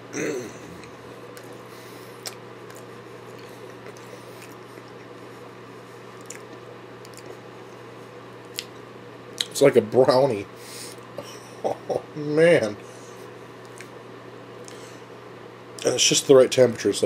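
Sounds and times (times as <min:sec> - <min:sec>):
steady low hum: 0:00.0 - 0:17.0
person chewing crispy food: 0:00.7 - 0:08.8
small sharp mouth clicks: 0:02.2 - 0:05.1, 0:06.2 - 0:07.3.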